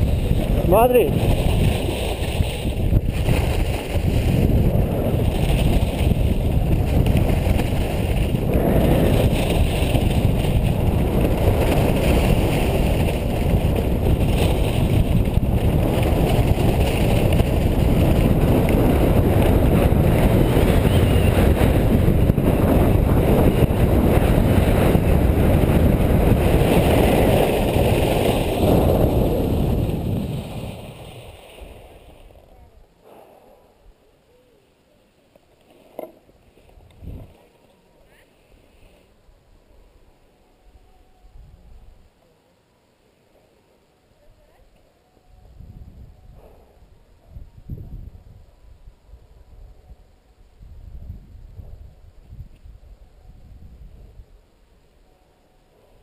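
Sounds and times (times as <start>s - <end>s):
skis sliding on snow: 0.0s - 32.5s
wind roaring on microphone: 0.0s - 34.0s, 36.7s - 37.5s, 40.6s - 42.1s, 45.3s - 54.6s.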